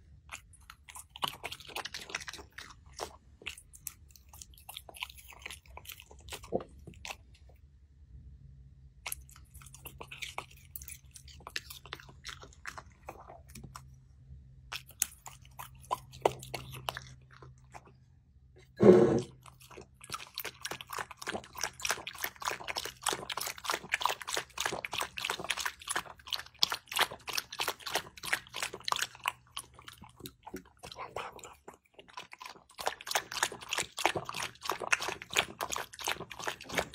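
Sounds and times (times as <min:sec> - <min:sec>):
chewing sounds: 0:00.0 - 0:07.6, 0:09.0 - 0:14.0, 0:14.6 - 0:36.9
dog lapping from bowl: 0:18.6 - 0:36.9
short loud thump: 0:18.8 - 0:19.3.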